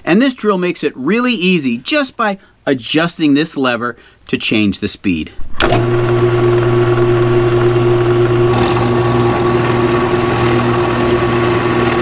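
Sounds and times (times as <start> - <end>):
drill press humming: 5.6 - 12.0
drill bit cutting wood: 8.5 - 12.0.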